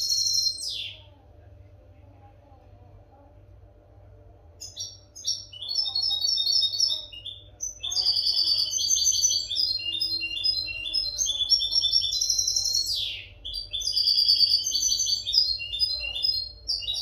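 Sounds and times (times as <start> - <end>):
goldfinch twittering song: 0.0 - 1.0.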